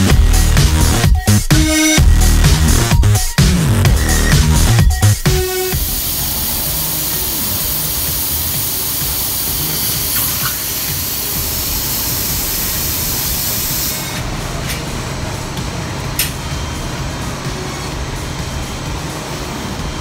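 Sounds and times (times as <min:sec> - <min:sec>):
compressed air hissing from torch: 0:05.6 - 0:14.3.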